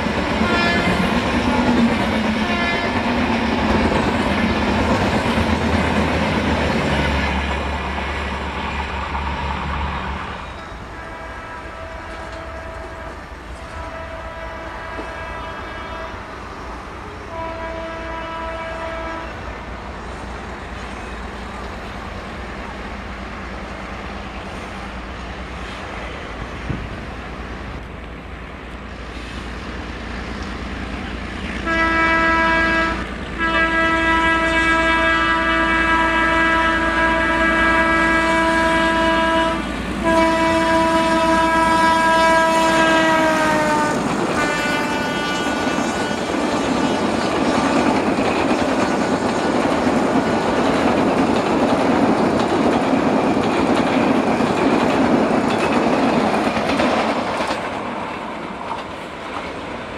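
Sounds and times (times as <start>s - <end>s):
train rolling: 0.0s - 59.9s
locomotive horn blasts: 0.4s - 1.2s, 2.4s - 3.0s, 10.8s - 16.3s, 17.3s - 19.4s, 31.6s - 46.4s.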